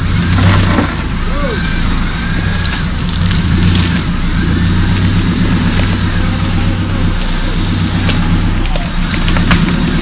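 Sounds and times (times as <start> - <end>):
off-road vehicle engine running: 0.0 - 10.0
vegetation snapping: 2.6 - 4.1.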